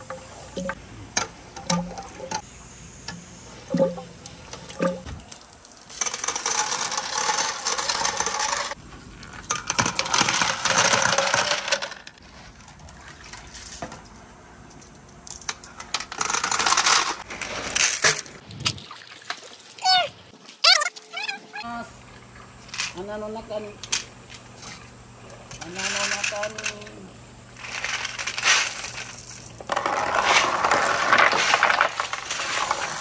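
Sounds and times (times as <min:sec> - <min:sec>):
glass marbles clattering: 0:04.7 - 0:08.8, 0:27.6 - 0:33.0.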